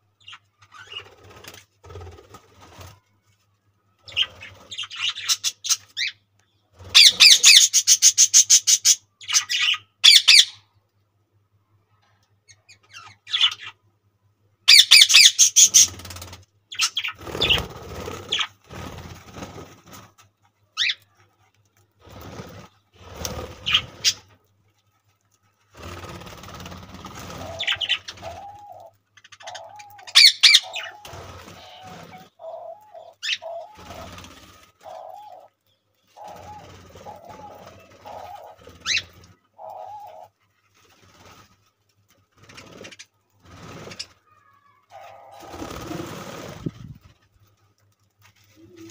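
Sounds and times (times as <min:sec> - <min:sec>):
budgerigars chirping: 0:29.4 - 0:31.0.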